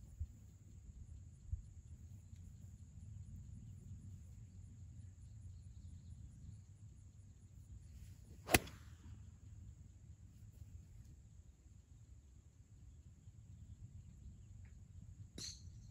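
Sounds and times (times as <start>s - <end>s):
golf club swish: 8.3s - 8.9s
golf club striking ball: 8.5s - 8.8s.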